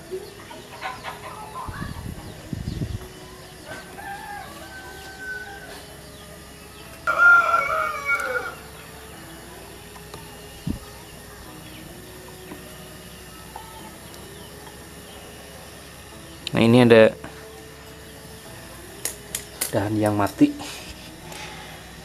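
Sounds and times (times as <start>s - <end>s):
rooster crowing: 3.6s - 6.2s, 7.0s - 9.1s.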